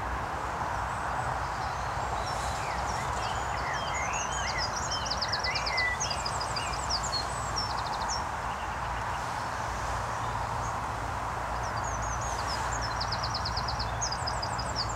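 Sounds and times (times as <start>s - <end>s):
songbird chirping and trilling: 1.6s - 8.2s.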